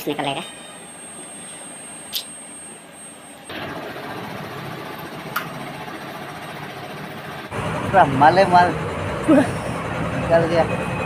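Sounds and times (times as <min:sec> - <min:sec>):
faint high whine: 0:00.0 - 0:03.8
indoor hum: 0:00.0 - 0:11.0
street traffic noise: 0:03.4 - 0:11.0.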